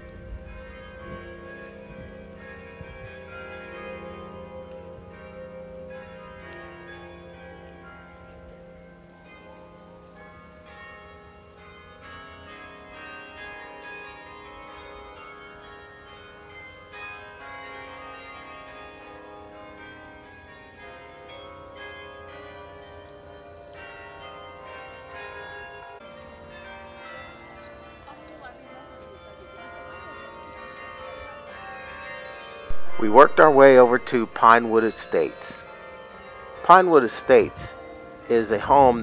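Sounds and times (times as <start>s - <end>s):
carillon bells melody: 28.9s - 39.0s.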